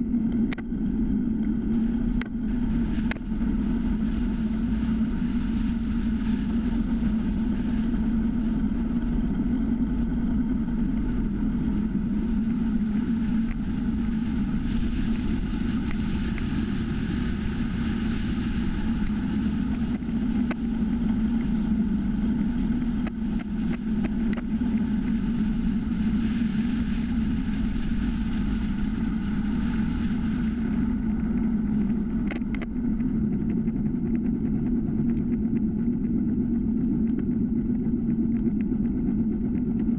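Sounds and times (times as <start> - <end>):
bicycle tyre rumble on asphalt: 0.0 - 39.9
wind buffeting microphone: 0.0 - 39.9
light ticks: 23.0 - 25.2, 31.1 - 32.7.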